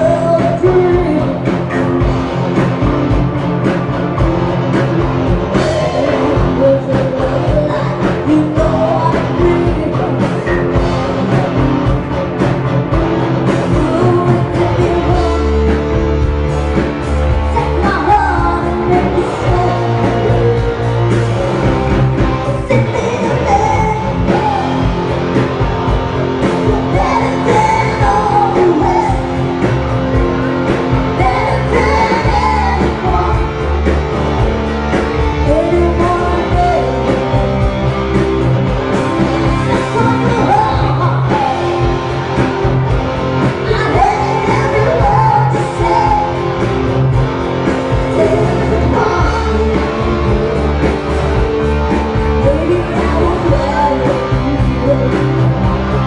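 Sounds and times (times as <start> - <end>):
woman singing: 0.0 - 2.1, 5.5 - 12.0, 13.4 - 16.4, 17.5 - 21.6, 22.4 - 25.7, 26.4 - 29.8, 30.7 - 34.0, 35.4 - 37.4, 39.2 - 42.5, 43.4 - 47.0, 47.7 - 50.9, 52.2 - 56.0
rock band playing: 0.0 - 56.0.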